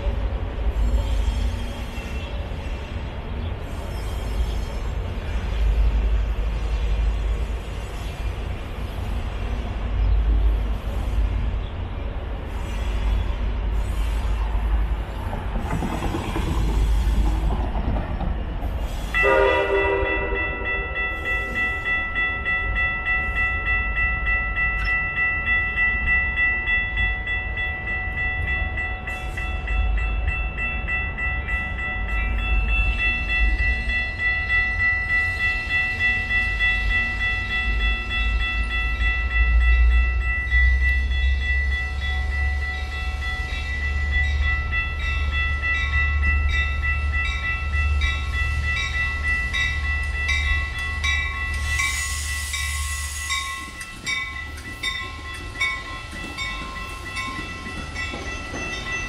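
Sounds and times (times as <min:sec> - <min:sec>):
trains rumbling: 0:00.0 - 0:59.0
crossing warning bell ringing: 0:19.1 - 0:59.0.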